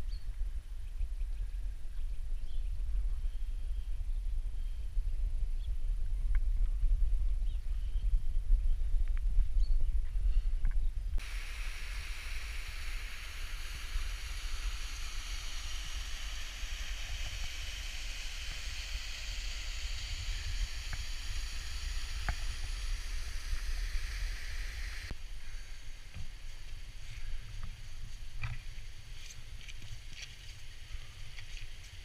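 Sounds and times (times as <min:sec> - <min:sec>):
low rumble: 0:00.2 - 0:25.2.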